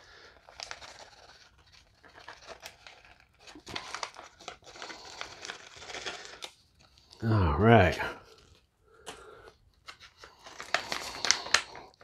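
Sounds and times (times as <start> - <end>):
packaging crinkling and rustling: 0.0 - 7.2, 9.7 - 12.0.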